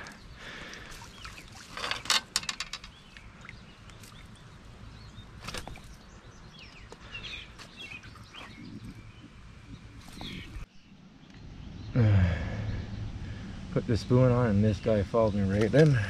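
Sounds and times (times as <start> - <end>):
bird chirps: 0.0 - 2.1, 2.9 - 13.3
sharp clicks and rattles: 1.8 - 3.1
low rumble: 8.5 - 15.5.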